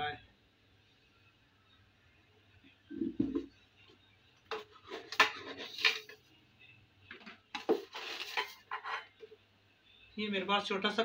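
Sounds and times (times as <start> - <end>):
kitchen utensils clattering: 4.5 - 6.2, 7.6 - 9.2.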